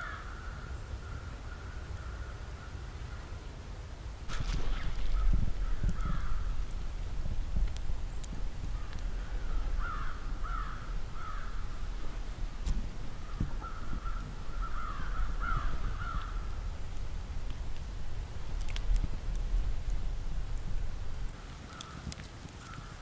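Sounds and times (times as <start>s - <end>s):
crows cawing: 0.0s - 2.8s, 4.4s - 6.6s, 8.8s - 12.0s, 13.2s - 16.6s, 21.7s - 23.0s
low steady rumble: 0.5s - 21.4s.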